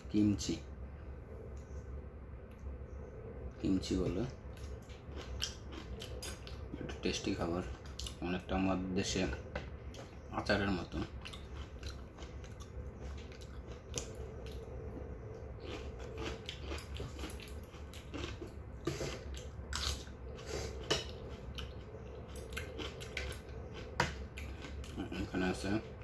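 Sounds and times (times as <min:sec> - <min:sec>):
steady low hum: 0:00.0 - 0:26.0
person chewing and crunching: 0:04.5 - 0:08.5, 0:09.9 - 0:26.0.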